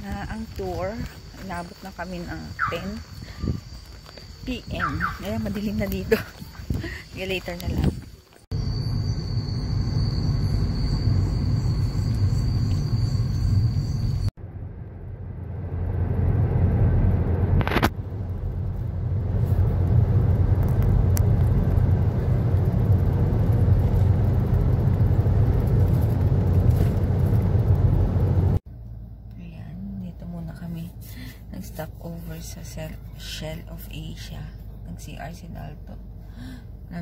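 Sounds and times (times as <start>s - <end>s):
car road and engine rumble: 0.0s - 37.0s
high-pitched whine: 7.6s - 28.6s.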